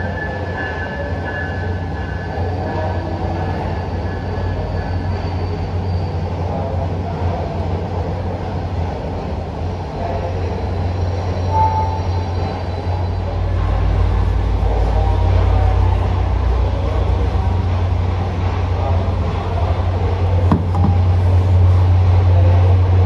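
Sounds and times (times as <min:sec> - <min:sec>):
train wheels rumbling on rails: 0:00.0 - 0:23.0
faint thin squeal: 0:03.5 - 0:06.3, 0:10.9 - 0:13.4.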